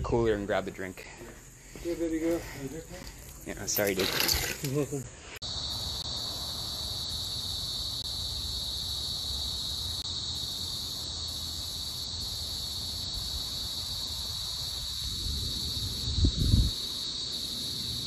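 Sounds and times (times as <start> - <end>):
insect chorus drone: 0.0 - 18.0.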